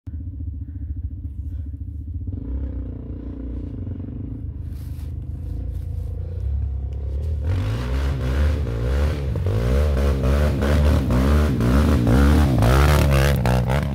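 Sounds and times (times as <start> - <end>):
quad bike engines revving: 0.1 - 13.9.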